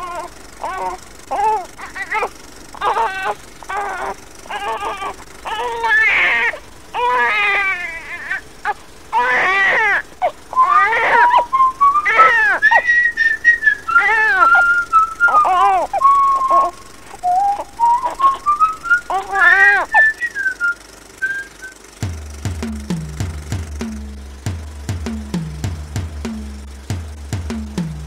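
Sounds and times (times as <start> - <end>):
cries bending in pitch: 0.0 - 20.4
whistled tune: 10.5 - 21.8.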